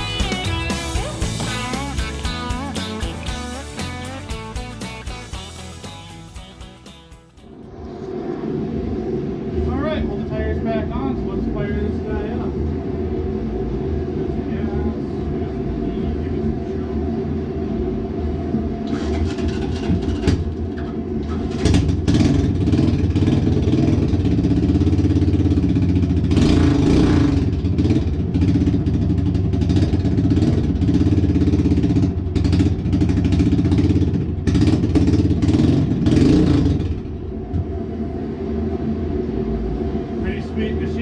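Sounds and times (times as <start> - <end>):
engine revving: 21.5 - 37.6.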